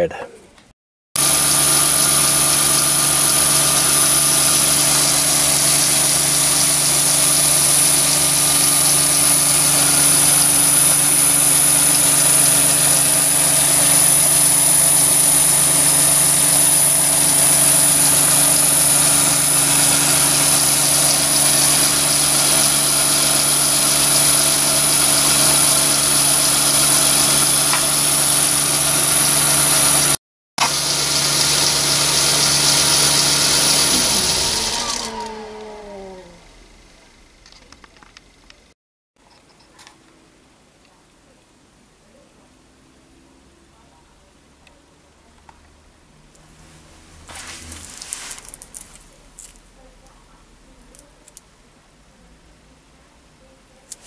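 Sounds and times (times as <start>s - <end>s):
metal lathe running: 1.2s - 37.4s.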